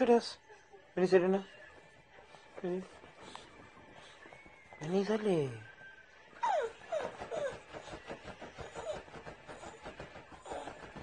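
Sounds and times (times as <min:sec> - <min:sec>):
dog breathing softly: 0:02.1 - 0:04.5
small dog whimpering: 0:06.4 - 0:08.0, 0:08.6 - 0:09.8.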